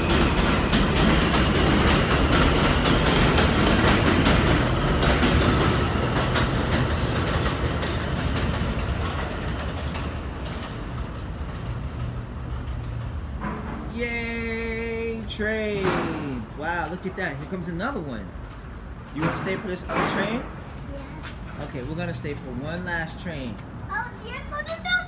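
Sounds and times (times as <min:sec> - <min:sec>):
subway train rumbling: 0:00.0 - 0:24.0
wheels clicking over rail joints: 0:00.0 - 0:25.0.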